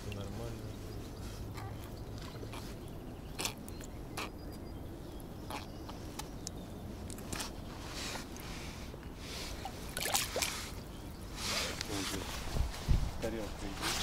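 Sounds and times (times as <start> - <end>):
clicks and scrapes unhooking fish: 1.5 - 4.4, 5.5 - 7.6.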